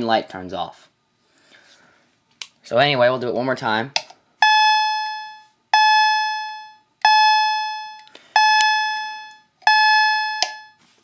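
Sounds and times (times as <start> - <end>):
fire alarm electronic chime: 4.4 - 10.8.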